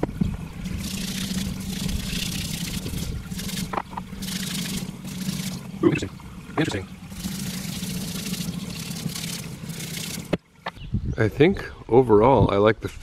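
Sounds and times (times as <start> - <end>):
water running from a hose: 0.0 - 10.6
low mechanical hum: 0.0 - 11.1
brush scrubbing stone: 0.8 - 5.6.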